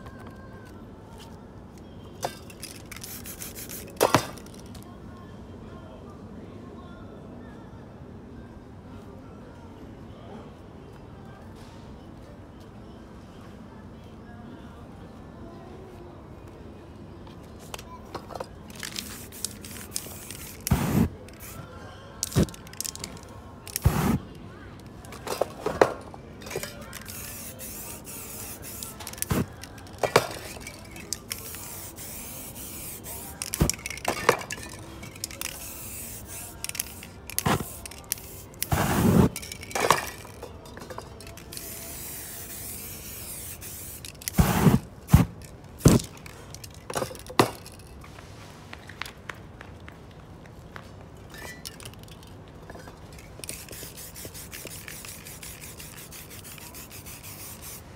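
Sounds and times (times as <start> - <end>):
aerosol spray can hissing: 3.0 - 4.2, 18.8 - 21.6, 23.7 - 24.2, 27.0 - 29.7, 30.3 - 33.8, 35.4 - 39.4, 41.5 - 45.3, 53.4 - 57.9.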